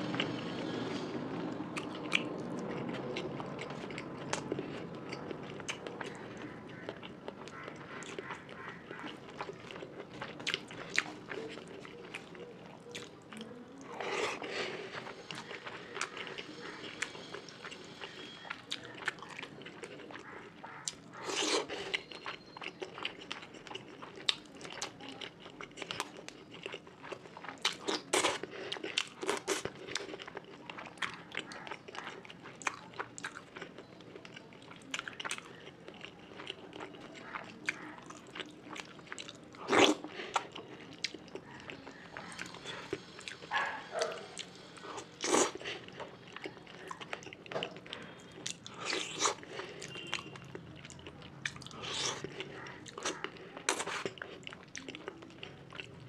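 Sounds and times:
person chewing and biting food: 1.8s - 55.9s.

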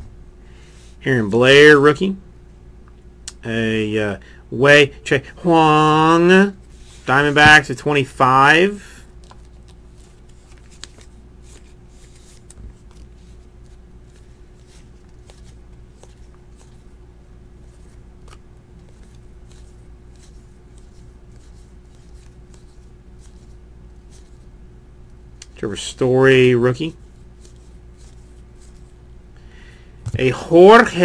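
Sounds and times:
steady low hum: 0.0s - 31.0s
trading cards sliding and flipping: 5.6s - 8.0s, 8.8s - 17.0s, 17.6s - 24.5s, 26.9s - 29.0s.

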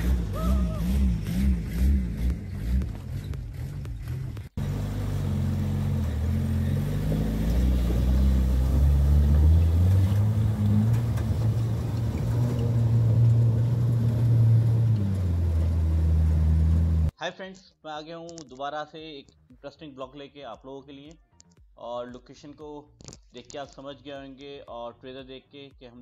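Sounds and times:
off-road engine pulling: 0.0s - 17.1s.

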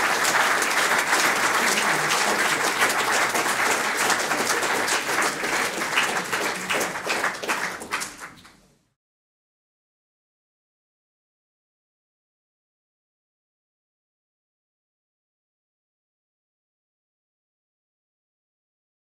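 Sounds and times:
audience applauding: 0.0s - 8.6s.

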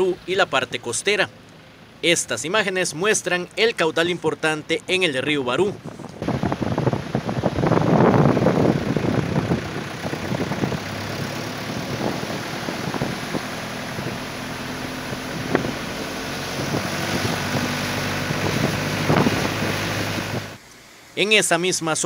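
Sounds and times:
vehicle engine idling: 0.0s - 21.2s
flooding river rushing: 9.9s - 20.6s.

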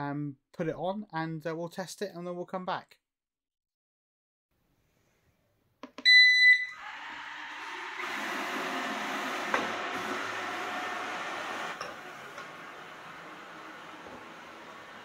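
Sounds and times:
loud high beep: 6.1s - 6.8s
robot vacuum motors running: 6.8s - 15.0s.

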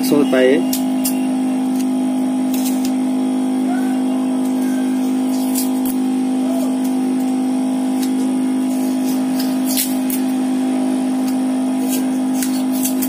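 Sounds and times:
steady machine hum: 0.0s - 13.0s
adhesive tape pulled from roll: 8.0s - 10.3s, 11.8s - 13.0s.

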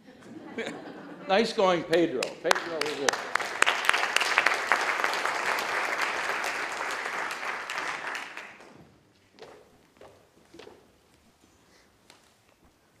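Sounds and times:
audience applauding: 1.6s - 8.7s.

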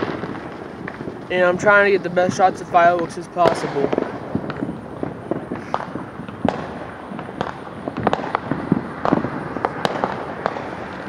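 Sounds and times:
background rumble: 0.0s - 11.0s
fireworks bangs and pops: 0.0s - 11.0s.

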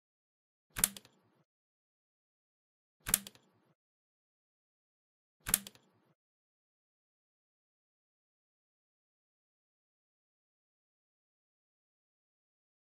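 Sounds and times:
sharp clicks: 0.8s - 1.2s, 3.0s - 3.6s, 5.4s - 6.0s.

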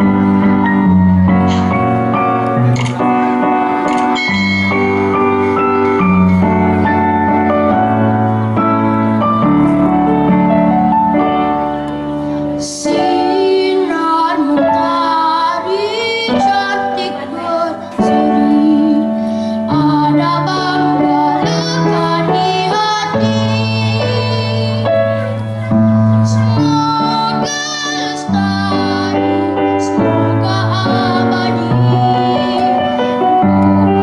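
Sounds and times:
backing music: 0.0s - 14.6s
girl singing a ballad: 12.4s - 34.0s.

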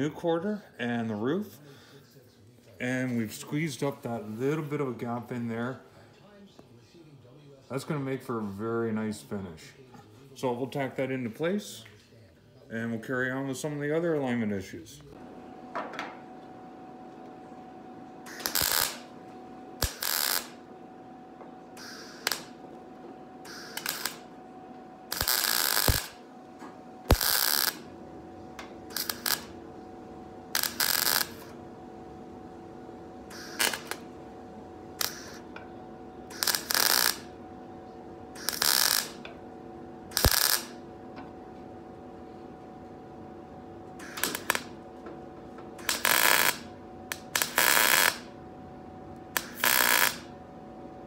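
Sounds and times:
steady hum: 0.0s - 51.0s
welder tack weld bursts: 18.2s - 19.2s, 19.8s - 20.6s, 21.8s - 22.6s, 23.4s - 24.3s, 25.1s - 26.2s, 27.1s - 27.9s, 28.9s - 29.6s, 30.5s - 31.6s, 33.3s - 34.1s, 35.0s - 35.4s, 36.3s - 37.4s, 38.4s - 39.3s, 40.1s - 40.8s, 44.0s - 44.7s, 45.8s - 48.3s, 49.4s - 50.3s.

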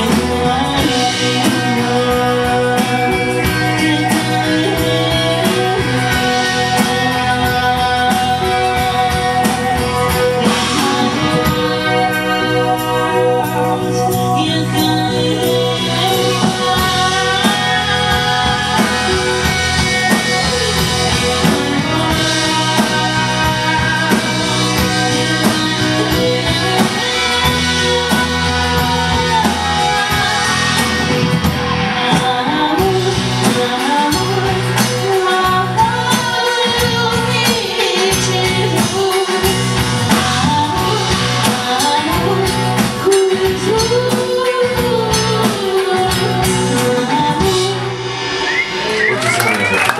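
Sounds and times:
woman singing: 0.0s - 49.7s
drums: 0.0s - 49.9s
electric bass guitar: 0.0s - 49.9s.

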